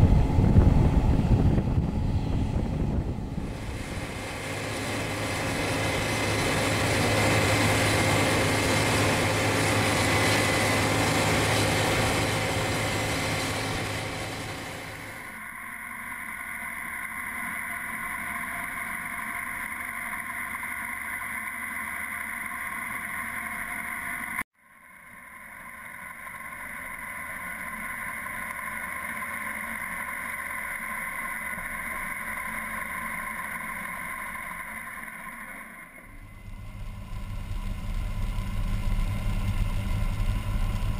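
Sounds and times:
combine harvester passing: 0:00.0 - 0:15.3, 0:36.0 - 0:40.9
combine header cutting wheat: 0:00.0 - 0:15.3, 0:36.1 - 0:40.9.

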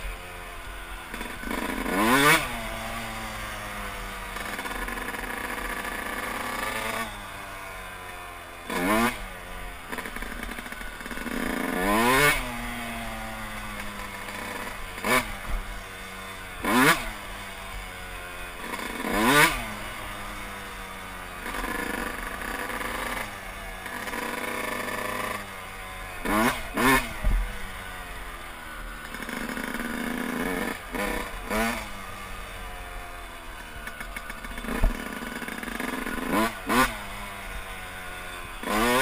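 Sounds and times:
two-stroke motorcycle engine revving: 0:00.0 - 0:39.0.

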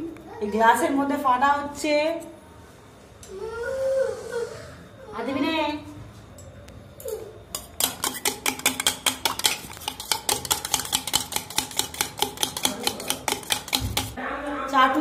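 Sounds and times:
utensil clinking against metal: 0:07.5 - 0:14.2.

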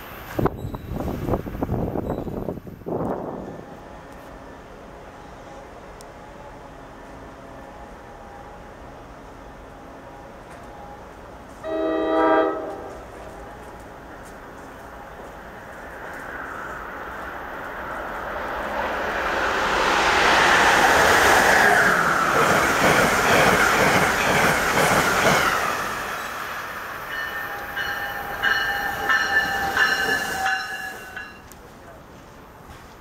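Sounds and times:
train passing at speed: 0:00.0 - 0:33.0
steady high ringing tone: 0:26.9 - 0:31.5.

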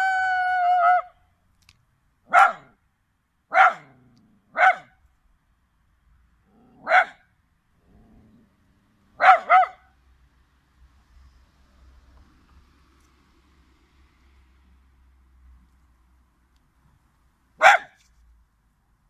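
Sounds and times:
dog barking: 0:02.3 - 0:02.8, 0:03.5 - 0:05.0, 0:06.8 - 0:07.3, 0:09.2 - 0:09.9, 0:17.6 - 0:18.0.

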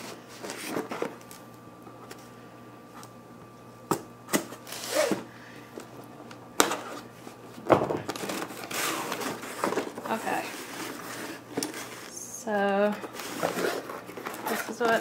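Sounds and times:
cardboard box rustling: 0:08.1 - 0:12.1, 0:13.1 - 0:15.0.

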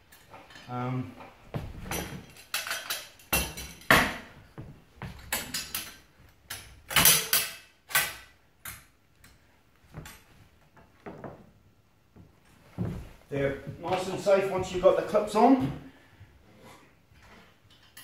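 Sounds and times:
metal trap clicking and clacking: 0:05.3 - 0:08.8.

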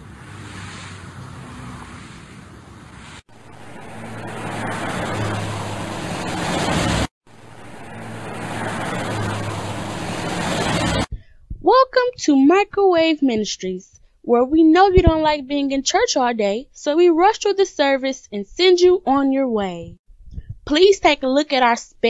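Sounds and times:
car approaching: 0:00.0 - 0:11.1.

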